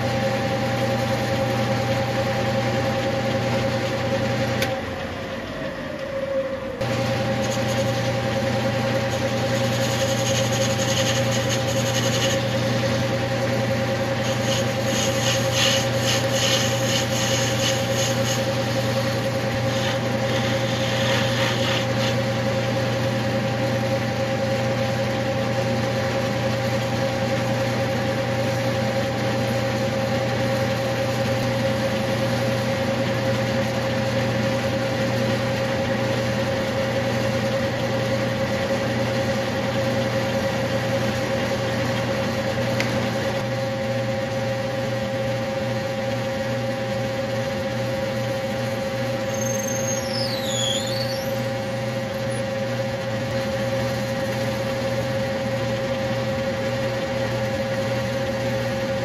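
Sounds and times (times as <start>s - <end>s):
metal lathe motor hum: 0.0s - 59.0s
scratchy high-pitched cutting noise: 14.3s - 18.5s.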